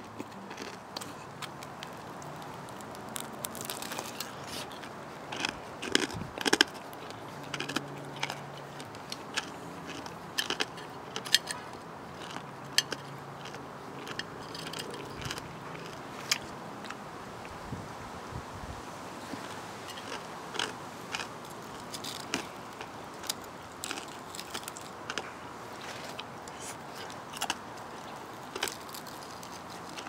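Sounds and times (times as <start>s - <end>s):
fried chicken crust crunching: 0.0s - 17.0s, 19.3s - 30.0s.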